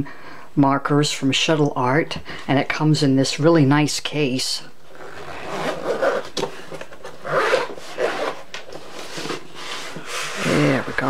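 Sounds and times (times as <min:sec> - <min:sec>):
zipper being pulled open: 0:04.9 - 0:11.0.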